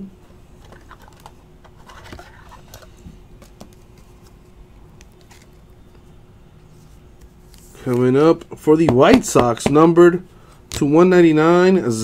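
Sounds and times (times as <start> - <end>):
faint steady hum: 0.0 - 12.0
plastic cards clicking and scratching: 0.6 - 4.1.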